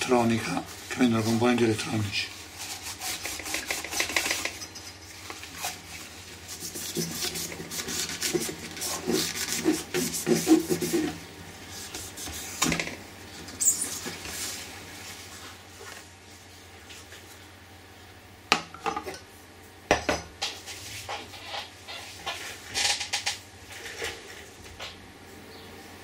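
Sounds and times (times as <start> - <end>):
cloth rubbing metal trim: 0.0 - 11.2.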